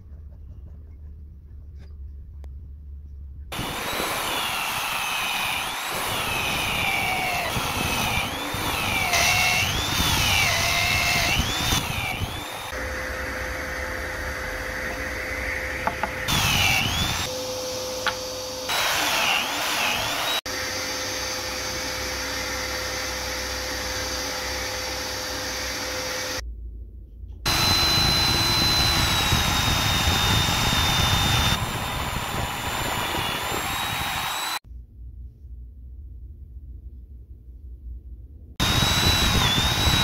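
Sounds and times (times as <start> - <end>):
drill bit boring high whine: 3.5 - 26.4, 27.5 - 34.6, 38.6 - 40.0
drill press with hole saw cutting: 3.5 - 26.4, 27.5 - 34.6, 38.6 - 40.0.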